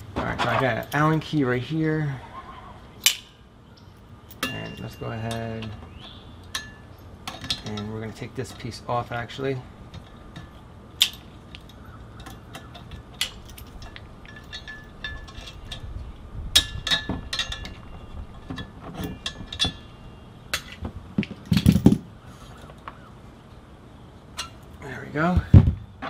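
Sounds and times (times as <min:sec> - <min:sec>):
short metallic rings: 0:03.0 - 0:15.9, 0:16.6 - 0:20.8
metal parts clunking: 0:04.0 - 0:22.1, 0:24.3 - 0:25.8
allen key clicking on bolts: 0:04.3 - 0:08.7, 0:09.9 - 0:16.0, 0:16.6 - 0:20.8.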